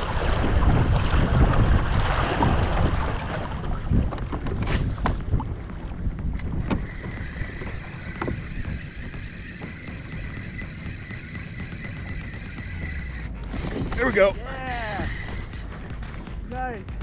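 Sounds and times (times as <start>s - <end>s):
water slapping against kayak hull: 0.0s - 13.2s
wind rumbling on microphone: 0.0s - 17.0s.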